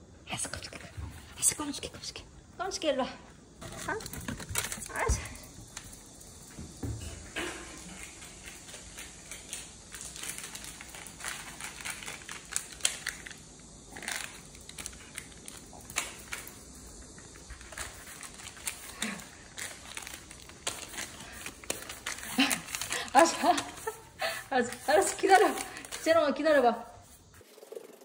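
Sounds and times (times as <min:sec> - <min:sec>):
plastic wrapper crinkling: 0:08.3 - 0:16.6, 0:17.5 - 0:26.3.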